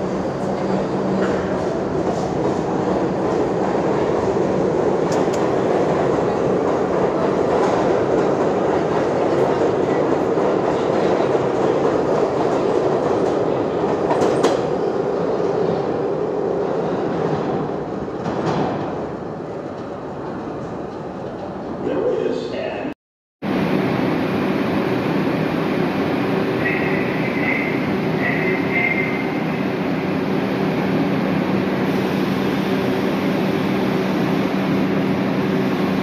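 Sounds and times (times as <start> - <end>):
train wheels rumbling on track: 0.0 - 21.8.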